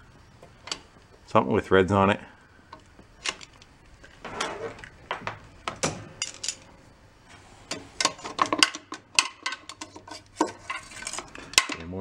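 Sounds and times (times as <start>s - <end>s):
metal clinking and clicking: 5.8s - 6.7s.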